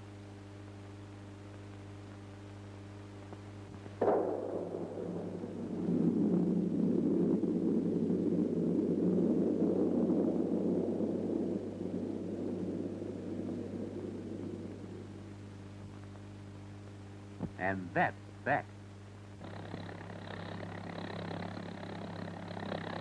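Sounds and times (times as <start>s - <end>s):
explosive blast bang: 4.0s - 5.5s
long rumble: 4.0s - 17.5s, 19.2s - 23.0s.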